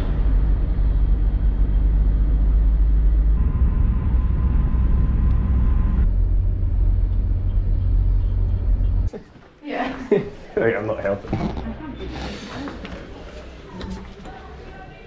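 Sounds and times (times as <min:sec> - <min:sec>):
vehicle road and engine rumble: 0:00.0 - 0:09.1.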